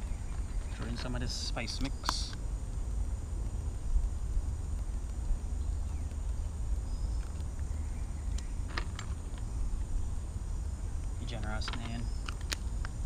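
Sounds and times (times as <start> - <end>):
faint light clicks: 1.8 - 2.4.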